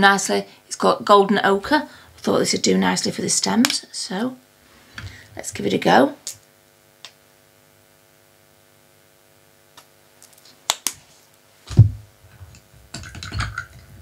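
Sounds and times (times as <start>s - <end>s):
steady electrical hum: 0.0s - 14.0s
low thump: 11.7s - 12.1s
craft items clattering on tabletop: 12.9s - 13.9s.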